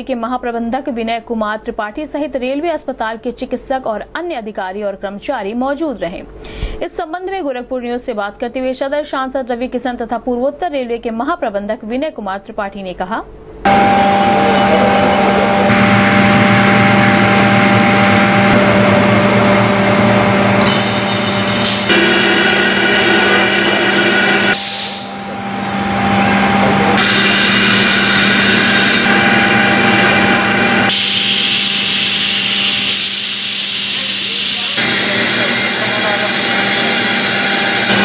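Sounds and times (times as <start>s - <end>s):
machinery humming: 13.3s - 38.0s
hiss: 24.5s - 25.2s, 30.9s - 36.3s.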